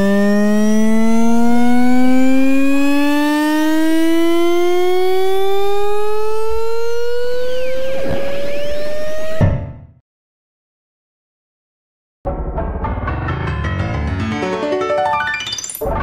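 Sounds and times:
synthesized tone gliding upward: 0:00.0 - 0:09.4.

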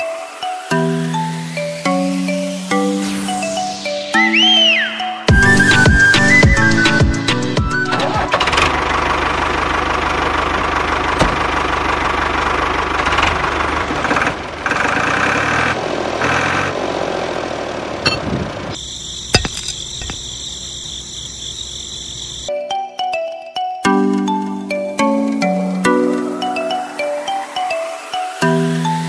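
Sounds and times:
toy tractor engine: 0:08.0 - 0:16.8.

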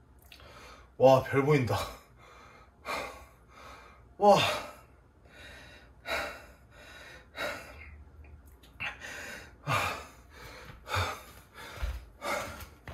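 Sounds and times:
man breathing hard and gasping: 0:00.3 - 0:01.0, 0:01.8 - 0:08.1, 0:08.8 - 0:12.9.

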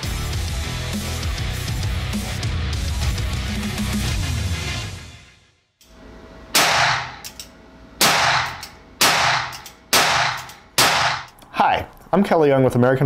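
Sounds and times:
rock music: 0:00.0 - 0:05.5
revolver gunshots echoing: 0:06.6 - 0:07.2, 0:08.0 - 0:11.3.

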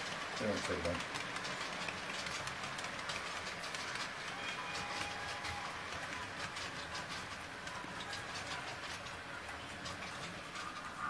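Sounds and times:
model train rolling on track: 0:00.0 - 0:11.0
wheels clicking on rails: 0:00.0 - 0:11.0.

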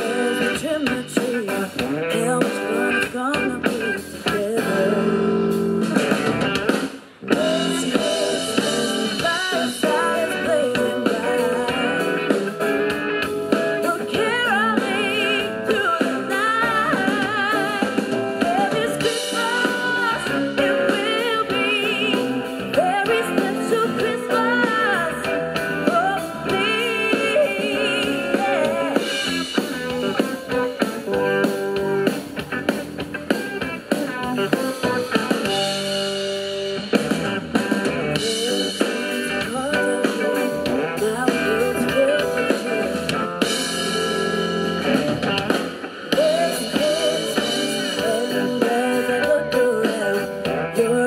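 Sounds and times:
woman singing with vibrato: 0:00.0 - 0:06.0, 0:07.2 - 0:12.9, 0:13.7 - 0:31.2, 0:38.2 - 0:43.2, 0:46.1 - 0:51.0
drums: 0:00.0 - 0:51.0
electric guitar: 0:00.0 - 0:51.0
keyboard: 0:00.0 - 0:51.0.

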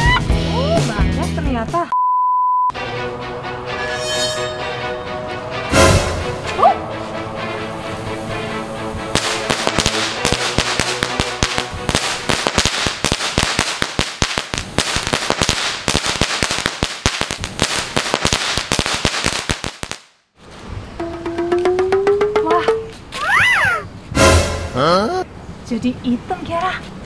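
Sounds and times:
firecracker crackling with rapid pops: 0:09.1 - 0:20.3.

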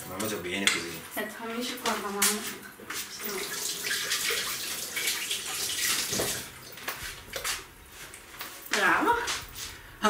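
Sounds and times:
tap water running over hand: 0:02.9 - 0:07.5.

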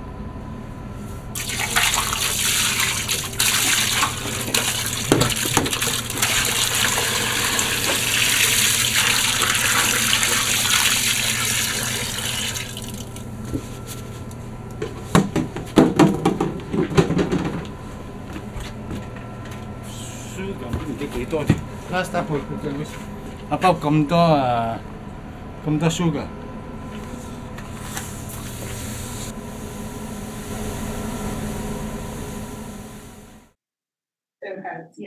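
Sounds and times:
liquid pouring into a steel pot: 0:01.4 - 0:13.1.

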